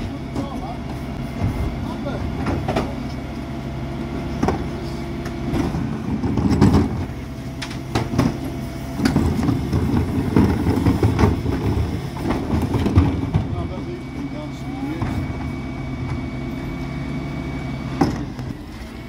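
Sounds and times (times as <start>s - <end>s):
diesel truck engine running: 0.0s - 19.0s
plastic bins clunking: 5.5s - 7.0s, 9.0s - 13.7s.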